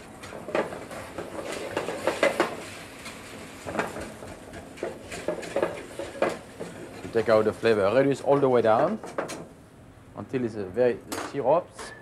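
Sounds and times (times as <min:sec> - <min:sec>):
boiling liquid hiss: 0:00.0 - 0:10.2
whisk scraping metal pan: 0:00.9 - 0:07.1.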